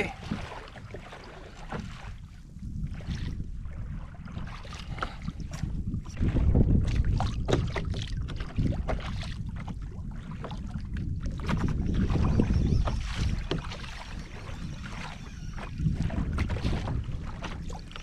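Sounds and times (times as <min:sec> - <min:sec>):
knocks and clicks on a boat: 0:00.0 - 0:03.4, 0:04.3 - 0:18.0
water slapping a kayak hull: 0:00.0 - 0:18.0
wind buffeting microphone: 0:00.0 - 0:18.0.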